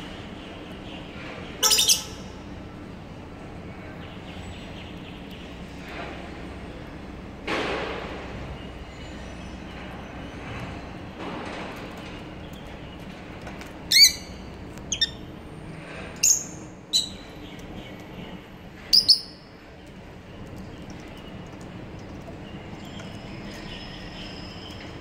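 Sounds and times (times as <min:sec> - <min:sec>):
low background hum: 0:00.0 - 0:25.0
lovebirds shrill chirps: 0:01.6 - 0:02.3, 0:13.9 - 0:15.2, 0:18.9 - 0:19.4.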